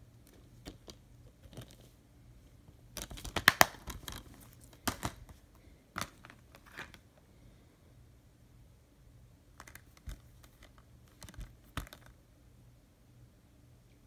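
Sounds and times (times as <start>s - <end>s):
plastic cases clicking: 3.0s - 5.4s, 9.6s - 12.1s.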